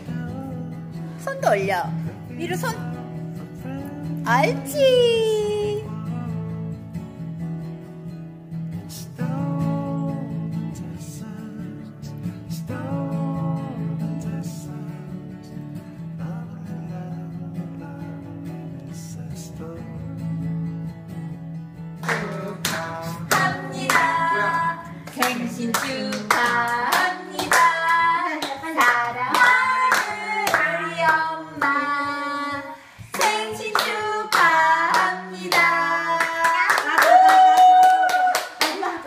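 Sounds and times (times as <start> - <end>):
soft acoustic guitar music: 0.0 - 36.7
people clapping in time: 22.0 - 31.8, 33.1 - 39.0
people singing together: 22.0 - 37.0.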